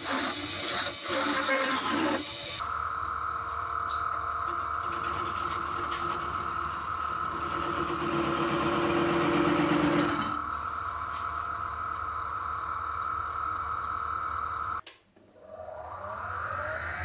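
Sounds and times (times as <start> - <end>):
chisel cutting spinning wood: 0.0 - 2.6, 4.5 - 10.6
wood lathe whining: 0.0 - 14.8.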